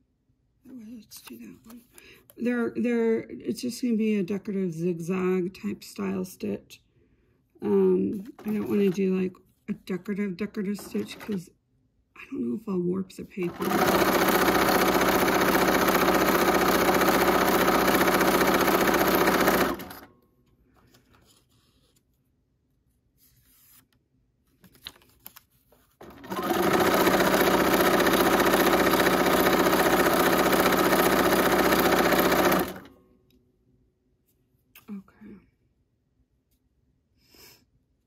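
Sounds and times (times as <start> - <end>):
sewing machine running: 13.5 - 20.1, 26.0 - 32.9
faint handling sounds: 20.4 - 26.0.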